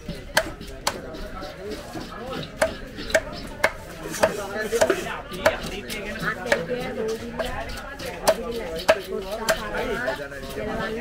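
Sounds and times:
cleaver chopping on wooden block: 0.0 - 9.8.

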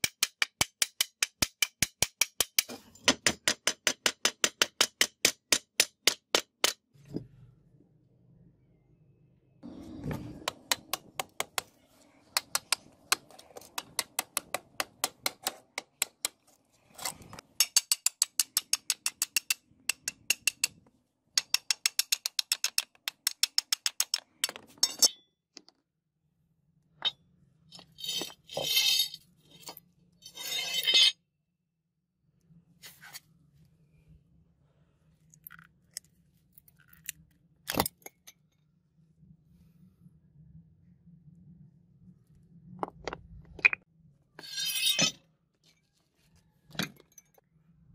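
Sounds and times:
metal scraping and rattling: 44.4 - 45.2.

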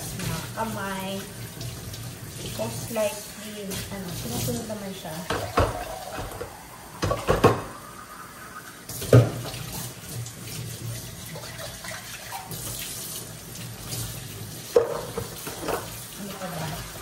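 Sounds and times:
dishes rinsed under water: 0.0 - 17.0
tap running into steel sink: 5.3 - 7.8, 9.0 - 9.7, 14.7 - 15.9.

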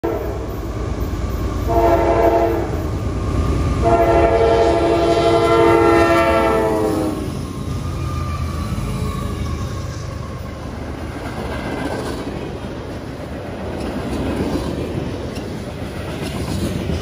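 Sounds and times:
locomotive air horn: 0.0 - 0.4, 1.7 - 2.8, 3.8 - 7.3
train rumbling: 0.0 - 17.0.

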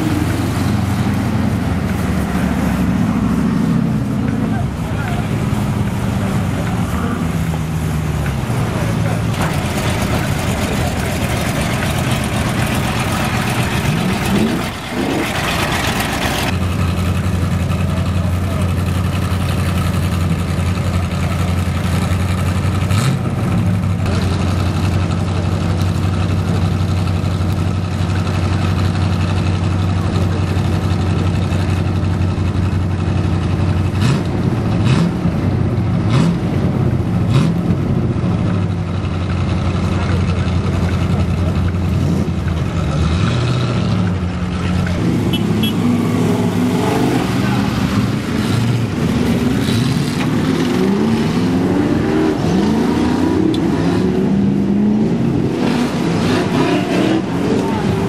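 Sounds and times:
engine revving: 0.0 - 20.4, 33.9 - 38.2, 41.2 - 58.0
off-road engines idling: 0.0 - 58.0.

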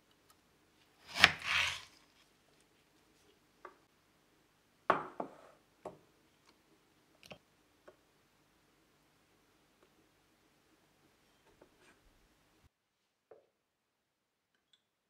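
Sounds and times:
knife blade rasping: 1.1 - 1.9.

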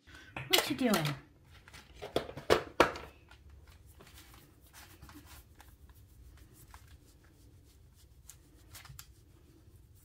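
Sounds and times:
fabric rustling: 3.6 - 10.0.

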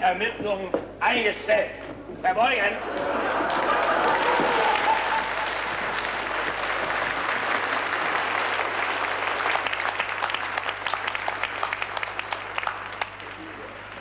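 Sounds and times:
audience applauding: 2.8 - 14.0.

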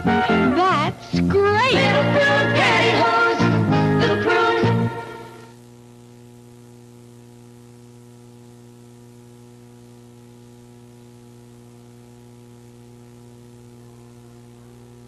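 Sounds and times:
electrical mains hum: 0.0 - 15.0
tape hiss: 0.0 - 15.0.

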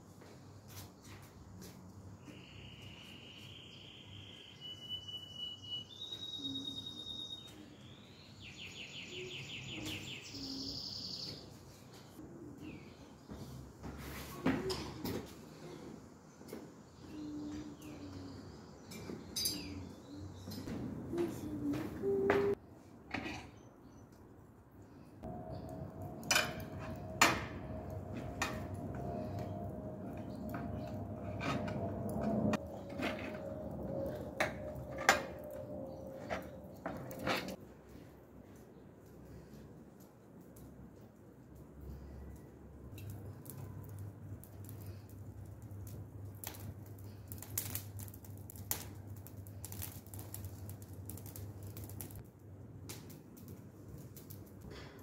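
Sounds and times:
straw fan clicking and tapping: 40.0 - 55.0.

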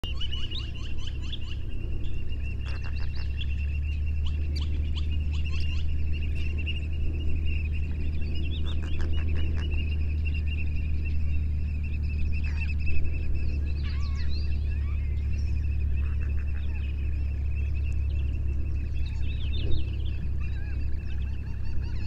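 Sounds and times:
birds chirping: 0.0 - 22.0
steady high buzz: 0.0 - 22.0
steady low rumble: 0.0 - 22.0
honk-like bird calls: 2.6 - 3.5, 8.6 - 9.9, 15.9 - 17.3.

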